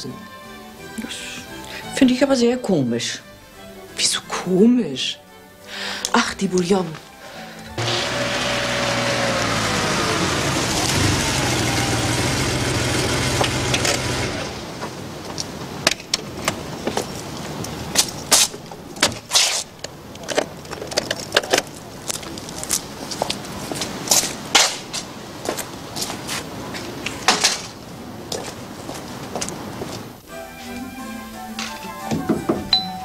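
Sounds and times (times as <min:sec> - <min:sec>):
sports car engine running: 0:07.8 - 0:14.7
footsteps on pavement: 0:21.7 - 0:27.3, 0:28.2 - 0:30.2.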